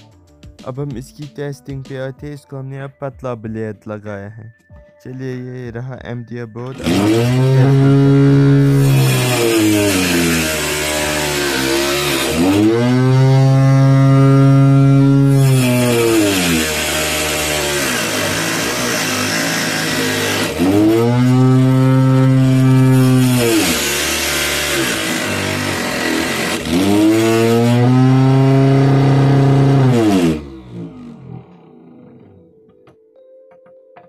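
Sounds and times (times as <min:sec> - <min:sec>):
cutting machine motor whine: 0:06.6 - 0:32.6.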